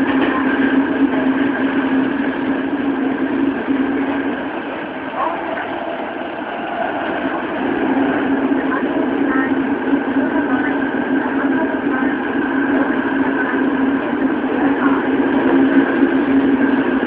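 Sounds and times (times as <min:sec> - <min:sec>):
subway train rumbling in tunnel: 0:00.0 - 0:17.0
train hum: 0:00.0 - 0:17.0.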